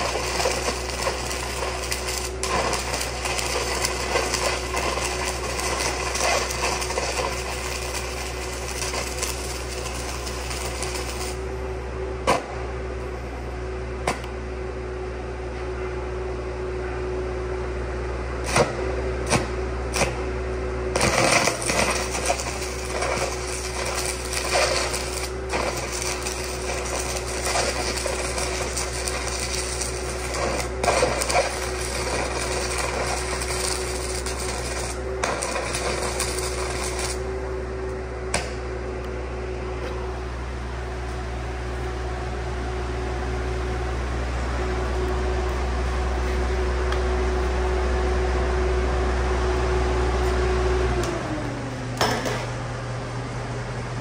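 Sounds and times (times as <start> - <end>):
noisy welding arc: 0.0 - 11.5, 18.4 - 37.3
welder engine droning: 0.0 - 54.0.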